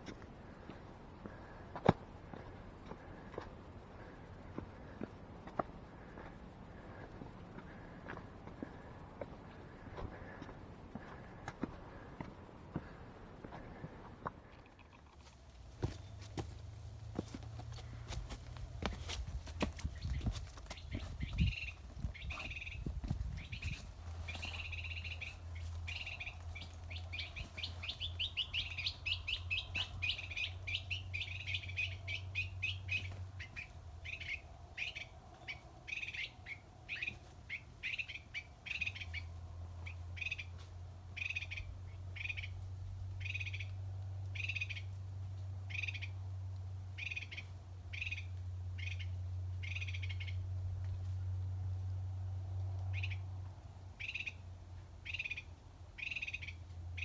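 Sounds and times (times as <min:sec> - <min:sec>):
steady low rumble: 0:00.0 - 0:37.0
bird chirping: 0:19.8 - 0:45.0, 0:45.7 - 0:46.2, 0:47.0 - 0:50.5, 0:52.9 - 0:53.3, 0:54.0 - 0:54.4, 0:55.0 - 0:57.0.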